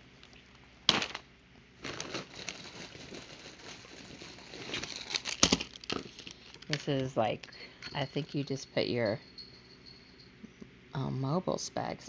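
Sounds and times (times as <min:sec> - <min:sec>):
plastic packaging crinkling: 0:01.8 - 0:07.6.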